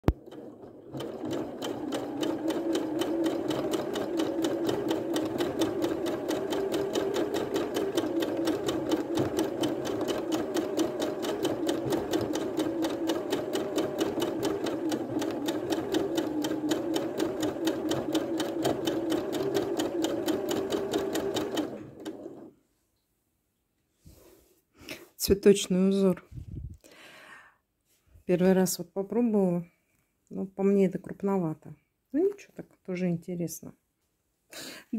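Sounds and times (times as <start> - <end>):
sewing machine stitching: 0.0 - 22.5.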